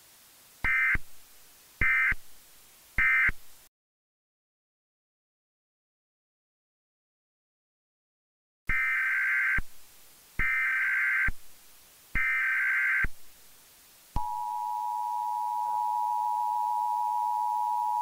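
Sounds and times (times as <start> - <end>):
two-tone attention signal: 14.2 - 18.0.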